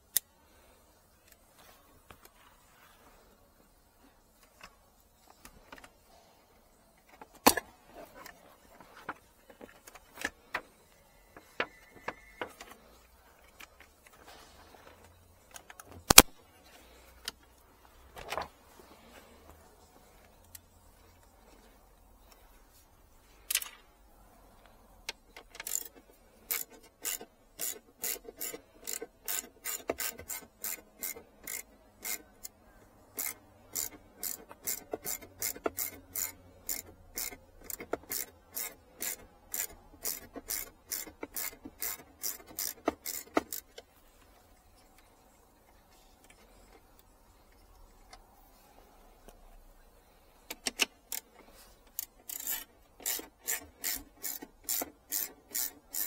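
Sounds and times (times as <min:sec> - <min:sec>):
tools being handled: 0:25.2 - 0:43.9, 0:50.5 - 0:56.0
ratchet wrench clicking: 0:25.4 - 0:43.8, 0:50.5 - 0:56.0.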